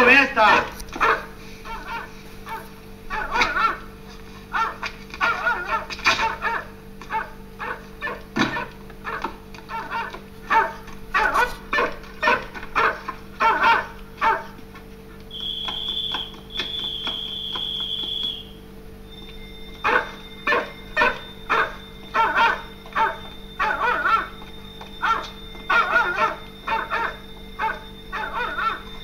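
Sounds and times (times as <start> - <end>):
dogs barking: 0.0 - 18.6, 19.7 - 29.0
high steady whistle: 15.3 - 29.0.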